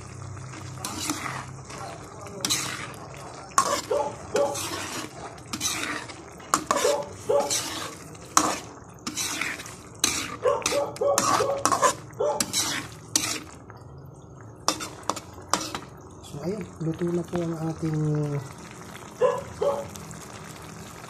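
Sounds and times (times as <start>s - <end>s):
utensil scraping and knocking a wok: 0.5s - 13.6s, 14.7s - 15.9s.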